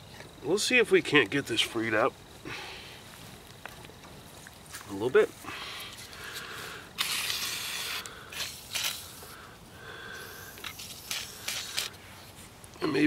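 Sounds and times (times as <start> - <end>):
aerosol spray hissing: 7.0 - 9.4, 10.1 - 12.0.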